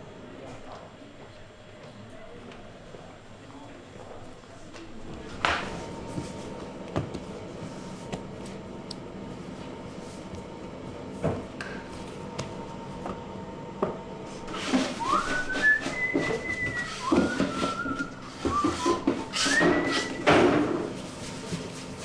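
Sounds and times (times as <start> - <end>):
person whistling a tune: 15.0 - 20.3.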